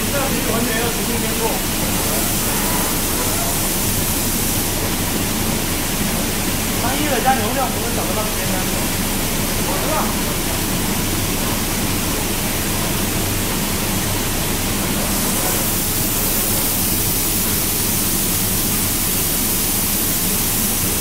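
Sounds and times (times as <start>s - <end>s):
low machine hum: 0.0s - 21.0s
paint spray booth rushing: 0.0s - 21.0s.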